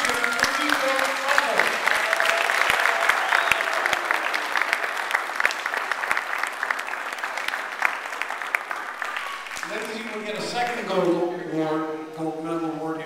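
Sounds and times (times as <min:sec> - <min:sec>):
audience clapping: 0:00.0 - 0:11.2.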